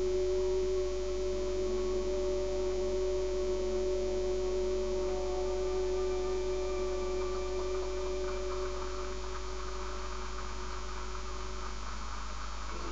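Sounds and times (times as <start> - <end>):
electrical mains hum: 0.0 - 12.9
faint hiss: 0.0 - 12.9
held tones: 0.0 - 12.9.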